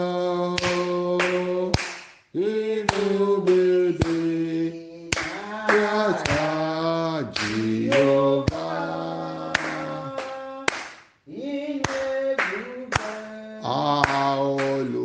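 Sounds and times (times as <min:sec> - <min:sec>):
man singing gospel song: 0:00.0 - 0:15.0
hand claps: 0:00.6 - 0:02.3, 0:02.9 - 0:04.3, 0:05.1 - 0:06.6, 0:07.4 - 0:08.7, 0:09.5 - 0:11.2, 0:11.8 - 0:13.3, 0:14.0 - 0:14.9.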